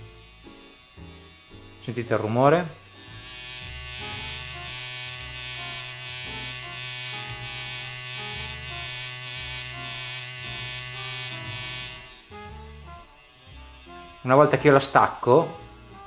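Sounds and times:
tattoo machine buzzing: 0.0s - 16.0s.

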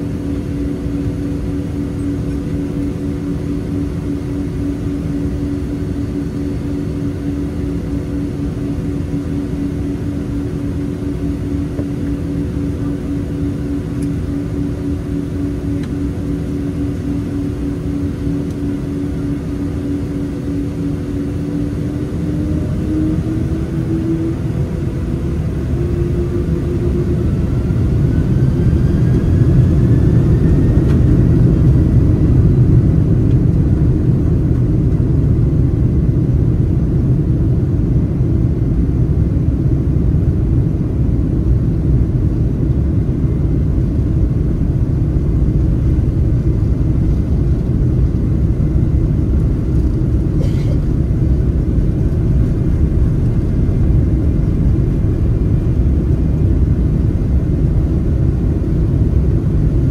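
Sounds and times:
jet engines spooling up: 0.0s - 35.7s
rumble of wheels on runway: 0.0s - 59.9s.

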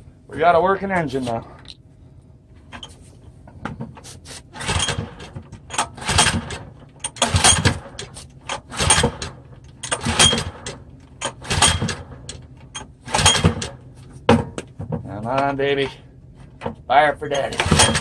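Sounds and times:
engine recoil starter pulls: 4.5s - 13.8s, 17.3s - 18.0s.

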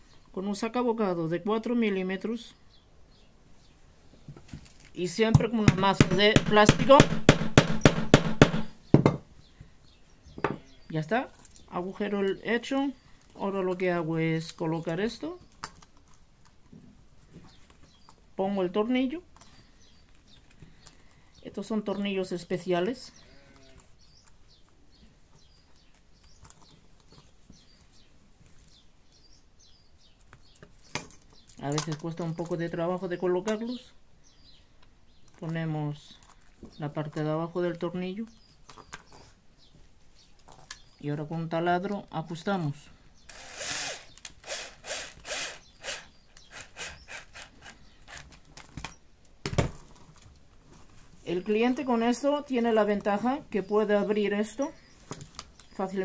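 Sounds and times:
small birds chirping: 0.0s - 49.1s, 50.2s - 56.0s
loud knock: 5.7s - 9.2s
leather belt clicks: 25.6s - 27.4s
cordless drill bursts: 43.3s - 48.2s.

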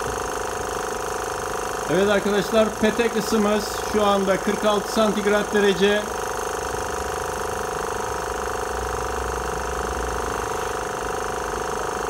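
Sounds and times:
small electric pump buzzing: 0.0s - 12.0s.

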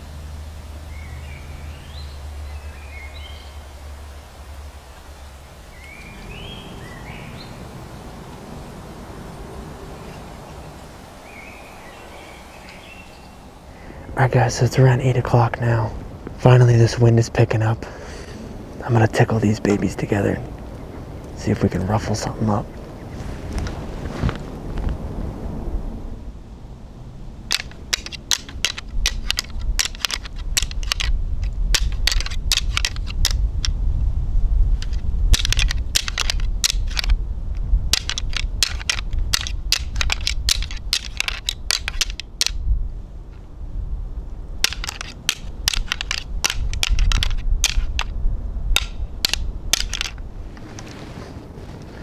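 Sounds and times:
wind rumble on microphone: 0.0s - 52.0s
antlers clacking together: 27.5s - 33.7s, 34.8s - 37.2s, 37.9s - 42.6s, 44.6s - 50.2s.

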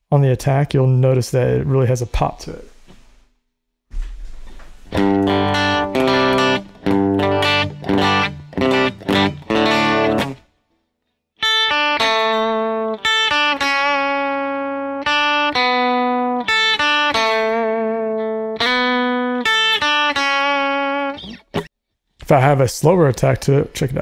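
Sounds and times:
electric guitar chords: 4.9s - 10.5s, 11.4s - 21.7s.

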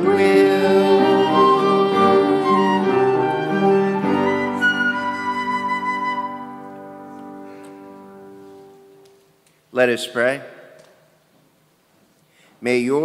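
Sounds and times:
sustained flute-like church music: 0.0s - 9.0s.

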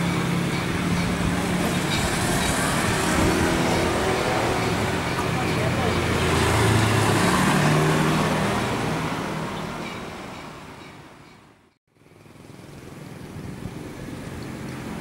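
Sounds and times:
motorcycle engine passing: 0.0s - 9.8s
street traffic: 0.0s - 15.0s.

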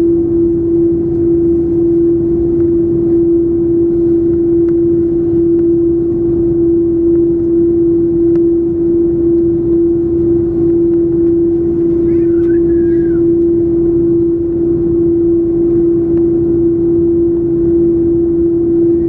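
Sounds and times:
aircraft cabin rumble: 0.0s - 19.0s
constant engine tone: 0.0s - 19.0s.

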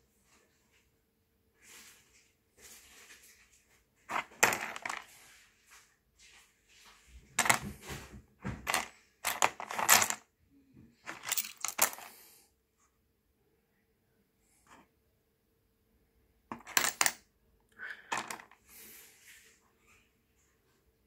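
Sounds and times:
stones clicking and scraping: 4.1s - 5.1s, 8.7s - 10.2s.

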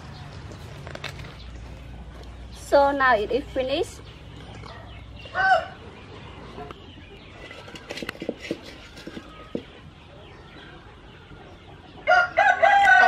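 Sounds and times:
chicken calling: 4.6s - 13.0s.

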